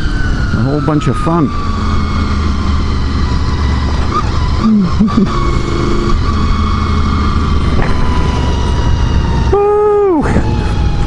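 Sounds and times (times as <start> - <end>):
motorcycle engine running: 0.0 - 11.0
wind rush on microphone: 7.3 - 11.0.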